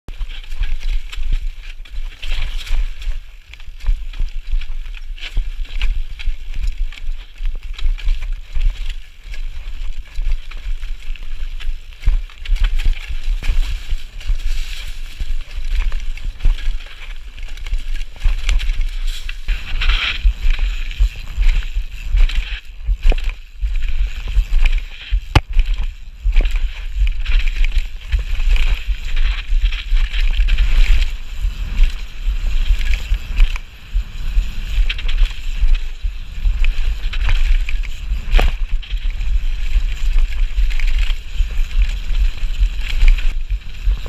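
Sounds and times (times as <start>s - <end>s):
small rattles and clicks: 0.1s - 44.0s
wind buffeting microphone: 0.1s - 44.0s.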